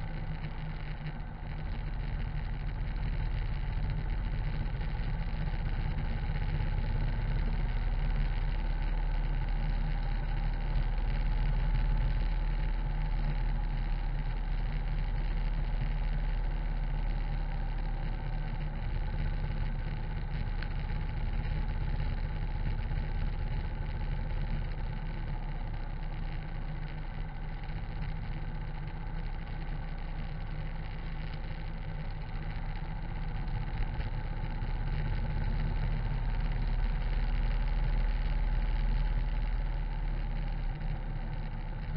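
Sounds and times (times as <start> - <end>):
motorcycle engine running steadily: 0.0 - 41.9.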